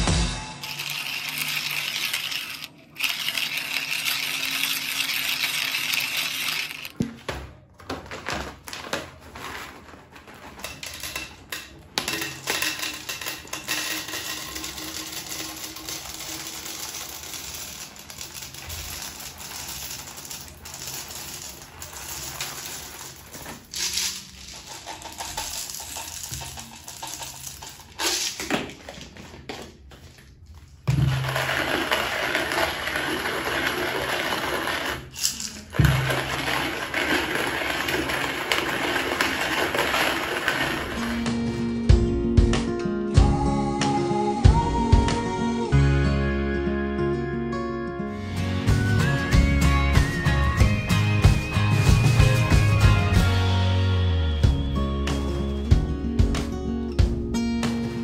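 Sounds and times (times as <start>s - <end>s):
coffee beans clicking into bottle: 0.6s - 7.0s, 12.2s - 28.6s.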